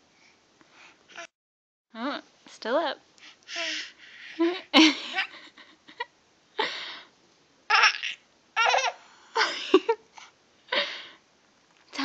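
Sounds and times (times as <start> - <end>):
baby laughing: 3.5 - 5.4, 7.7 - 9.0.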